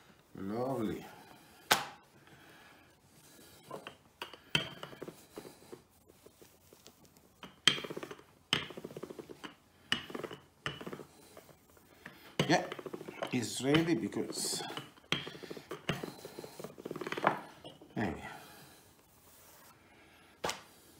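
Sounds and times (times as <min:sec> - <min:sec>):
rolling pin rumbling on dough: 0:03.2 - 0:18.5.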